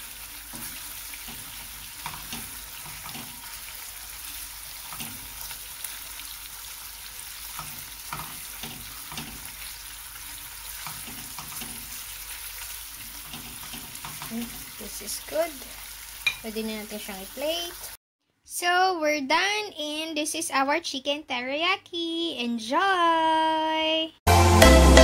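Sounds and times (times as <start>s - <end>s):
chicken sizzling in a frying pan: 0.0s - 18.0s.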